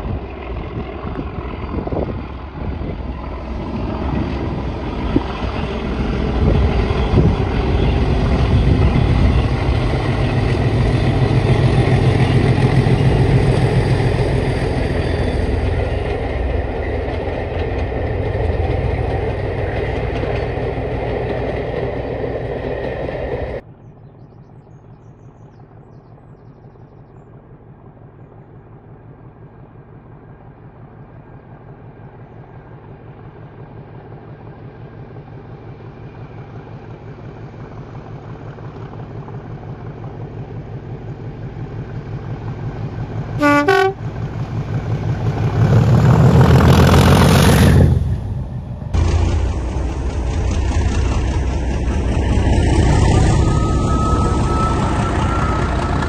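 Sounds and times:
diesel locomotive engine: 0:00.0 - 0:56.0
locomotive horn blast: 0:43.4 - 0:44.2
rising whistle: 0:52.1 - 0:56.0.

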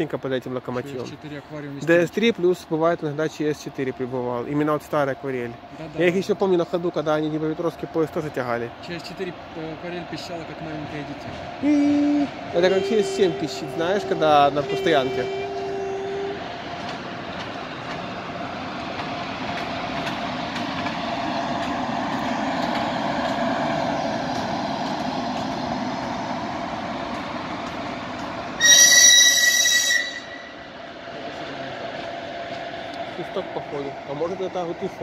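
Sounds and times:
electric locomotive rumbling: 0:00.0 - 0:35.0
high-pitched train horn blast: 0:11.9 - 0:16.5, 0:28.6 - 0:30.7.

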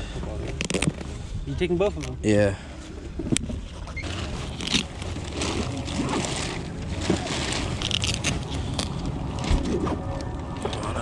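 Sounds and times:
plastic sheeting rustling: 0:03.8 - 0:10.2.

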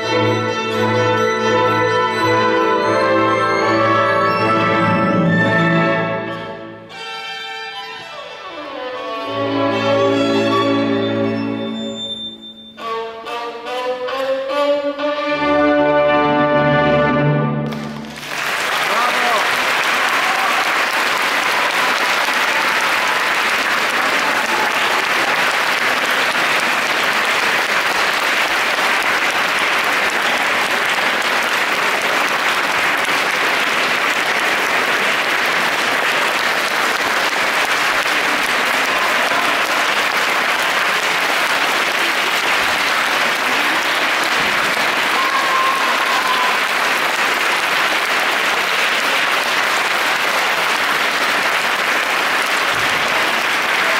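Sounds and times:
audience applauding: 0:17.6 - 0:53.9.

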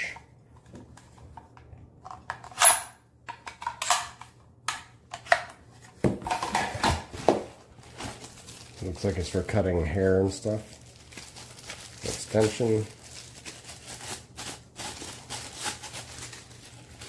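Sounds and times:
plastic bags rustling: 0:06.3 - 0:17.0.

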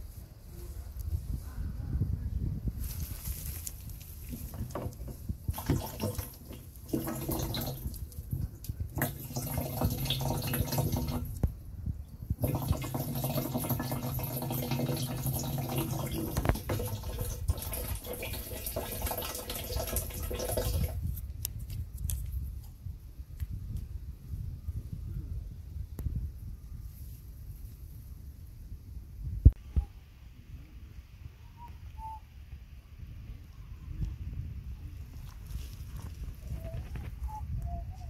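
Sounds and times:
water stream filling a can: 0:04.3 - 0:08.3, 0:08.9 - 0:11.4, 0:12.4 - 0:21.1.

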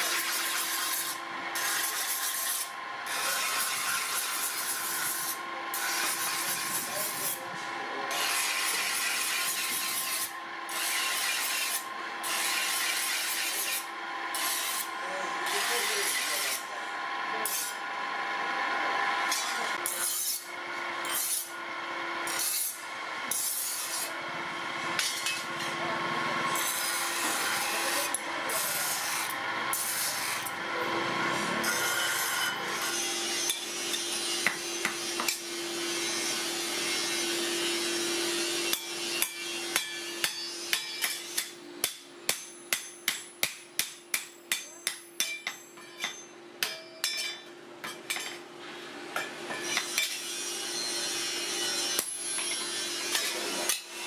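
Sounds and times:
grinding wheel rasping on steel: 0:00.0 - 0:24.2, 0:24.8 - 0:43.3, 0:49.2 - 0:54.0
grinder motor hum: 0:00.0 - 0:40.3
hammer striking steel: 0:08.1 - 0:14.9, 0:19.3 - 0:21.5, 0:25.0 - 0:25.8, 0:31.6 - 0:35.6, 0:38.6 - 0:48.5, 0:49.1 - 0:50.5, 0:51.1 - 0:54.0.

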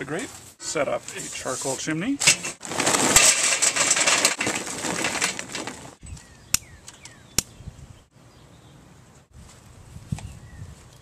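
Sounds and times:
charcoal clattering into metal: 0:01.1 - 0:06.0.

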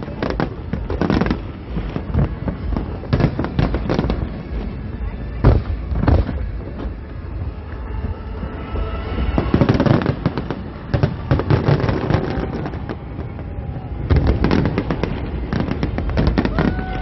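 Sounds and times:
fireworks crackling and popping: 0:00.0 - 0:17.0
firework bang: 0:05.4 - 0:07.0, 0:09.0 - 0:17.0.

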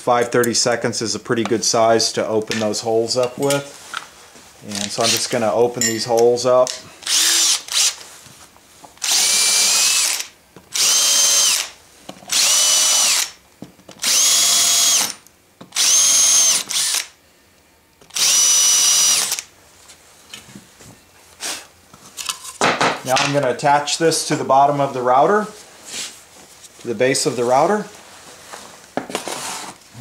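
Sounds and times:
power drill motor whine: 0:07.0 - 0:08.0, 0:09.0 - 0:13.4, 0:14.0 - 0:17.1, 0:18.1 - 0:19.5.

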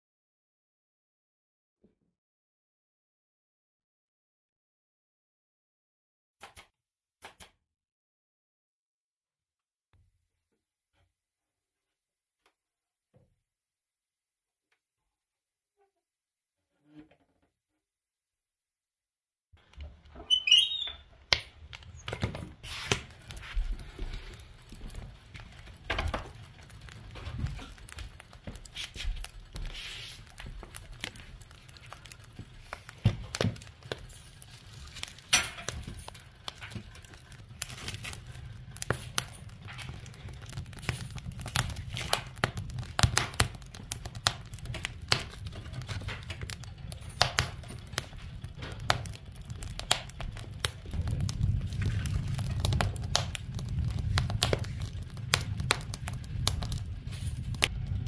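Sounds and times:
low rumble of flame: 0:19.6 - 0:58.0
wood fire crackling and popping: 0:19.6 - 0:58.0.

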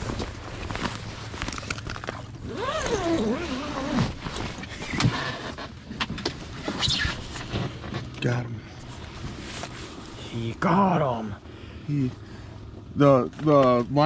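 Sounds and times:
nylon fabric rustling: 0:00.0 - 0:05.2
steady low hum: 0:00.0 - 0:14.0.

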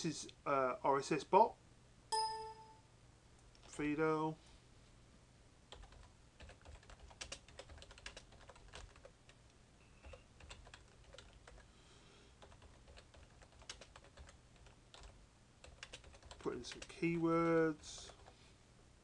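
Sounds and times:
typing on keyboard: 0:05.7 - 0:09.1, 0:10.0 - 0:11.7, 0:12.4 - 0:17.0, 0:17.9 - 0:18.4.

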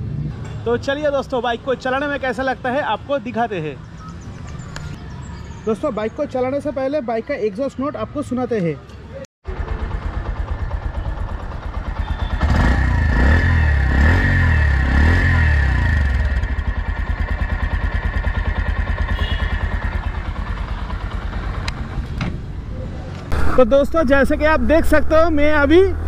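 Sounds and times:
motorcycle engine idling and revving: 0:09.4 - 0:26.0.

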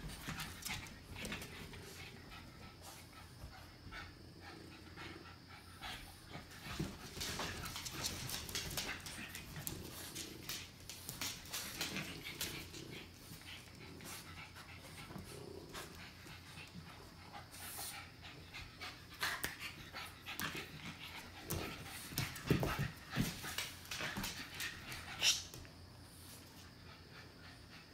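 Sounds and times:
puppies play noise: 0:00.0 - 0:27.9
puppies scuffling: 0:06.4 - 0:16.8, 0:20.2 - 0:25.7.

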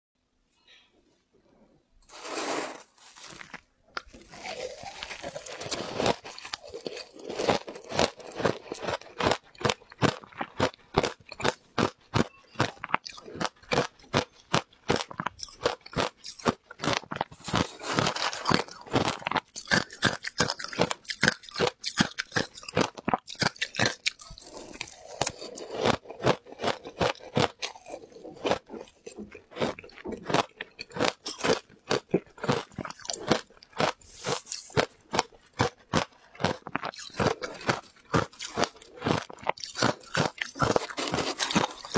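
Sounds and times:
shaved ice crunching: 0:02.1 - 0:09.8, 0:37.0 - 0:41.9.

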